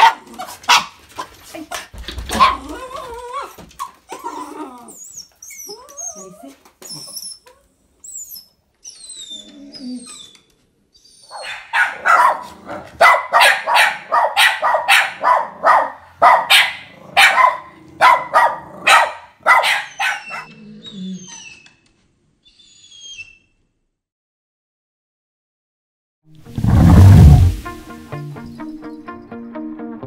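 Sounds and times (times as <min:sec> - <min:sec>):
dog barking sharply: 0:00.0 - 0:01.0, 0:11.4 - 0:20.5.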